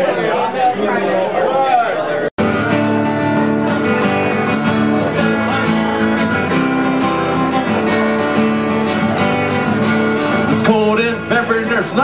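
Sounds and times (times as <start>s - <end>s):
acoustic guitar strumming: 2.4s - 12.0s.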